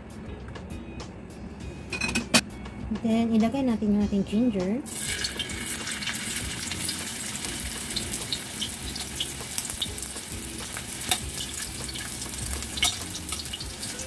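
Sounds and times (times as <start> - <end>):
ginger sizzling in oil: 4.9 - 14.0.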